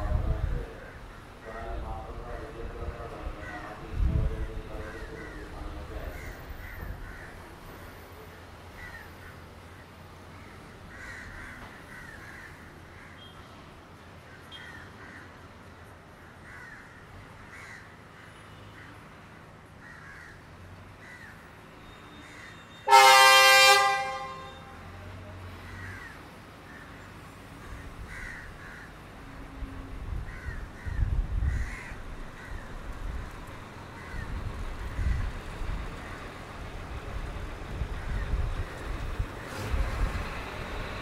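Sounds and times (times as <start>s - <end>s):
train rumbling away: 0.0s - 12.2s, 21.5s - 41.0s
crows cawing: 3.4s - 3.8s, 4.8s - 7.5s, 8.7s - 9.5s, 10.3s - 13.4s, 14.3s - 15.5s, 16.2s - 19.0s, 19.8s - 21.5s, 22.2s - 22.7s, 25.6s - 27.0s, 27.6s - 29.1s, 30.3s - 32.8s, 33.9s - 34.4s, 35.0s - 35.3s, 36.0s - 36.2s
train horn blast: 22.8s - 25.0s.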